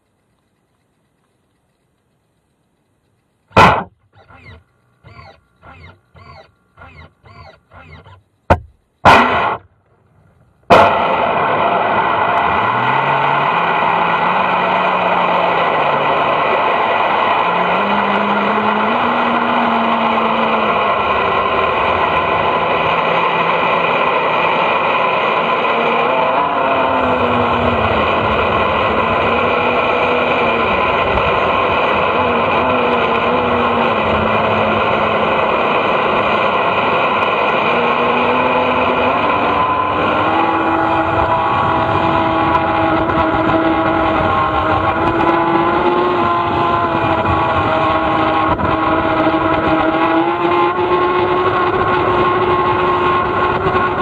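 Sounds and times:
model boat motor running: 0.0s - 10.7s, 12.7s - 54.0s
short evenly spaced pulses: 0.0s - 10.7s
loud knocks: 8.5s - 9.6s.

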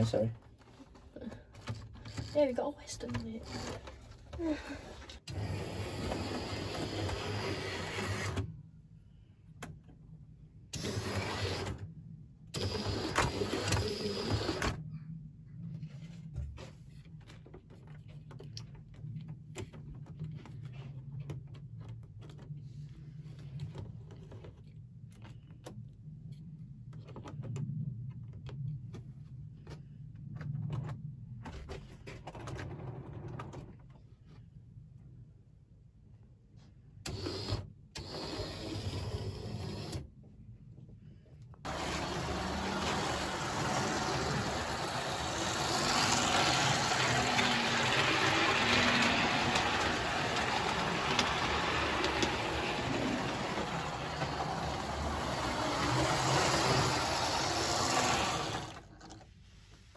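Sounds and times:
electric motor humming: 41.7s - 58.8s.

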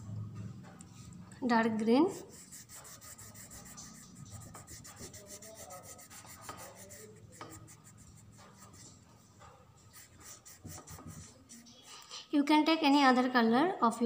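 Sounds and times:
crayon rubbing on paper: 2.0s - 9.0s, 9.9s - 12.1s.

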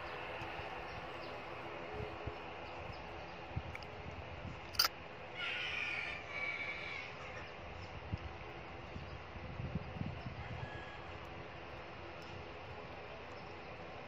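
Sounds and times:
distant jet engines: 0.0s - 14.0s
sharp click: 4.7s - 4.9s.

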